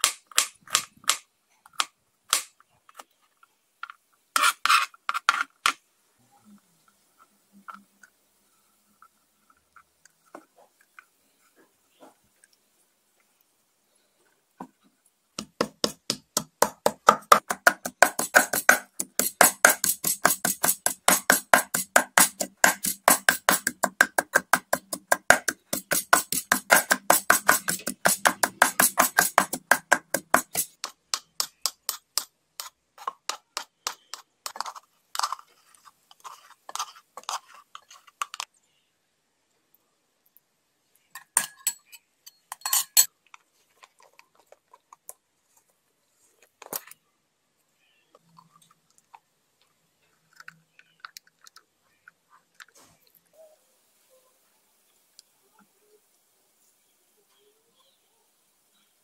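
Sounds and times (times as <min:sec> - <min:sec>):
pestle pounding in stone mortar: 0:15.4 - 0:32.3
metal spoon clinking glass bowl: 0:41.2 - 0:43.1.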